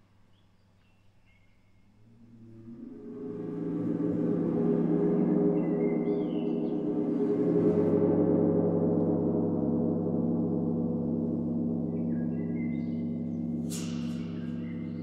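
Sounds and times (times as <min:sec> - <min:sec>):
large gong ringing drone: 0:02.1 - 0:15.0
bright metallic strike: 0:08.7 - 0:15.0.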